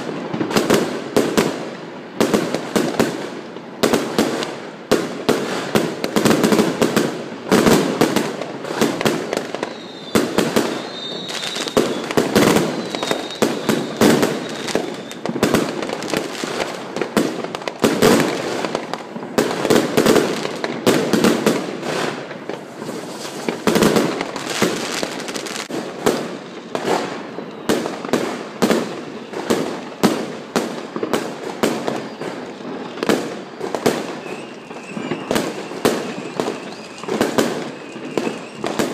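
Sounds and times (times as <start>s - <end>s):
fireworks banging and crackling: 0.0s - 38.9s
faint high whistle: 9.6s - 15.2s, 27.2s - 27.8s, 31.8s - 32.6s, 34.0s - 38.9s.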